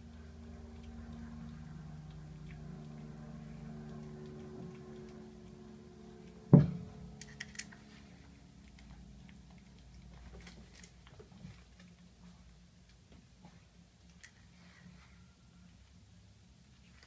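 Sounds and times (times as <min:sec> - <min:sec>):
puppy licking wet food: 0:00.1 - 0:06.4
loud thump: 0:06.5 - 0:06.9.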